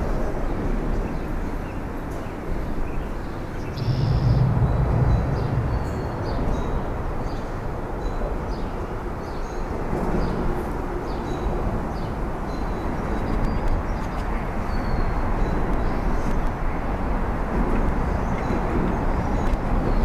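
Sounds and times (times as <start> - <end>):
traffic rumble: 0.0 - 20.0.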